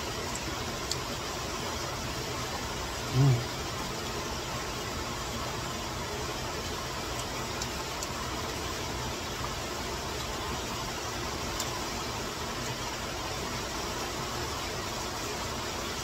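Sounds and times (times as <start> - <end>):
heavy rain: 0.0 - 16.0
stream rushing in flood: 0.0 - 16.0.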